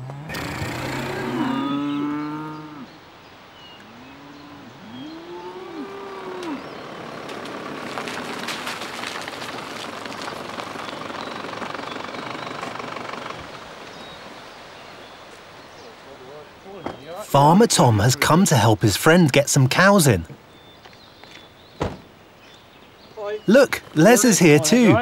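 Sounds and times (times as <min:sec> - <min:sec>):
steady vehicle noise: 0:00.0 - 0:01.7, 0:06.6 - 0:14.8
cattle mooing: 0:00.0 - 0:02.9, 0:04.0 - 0:07.2.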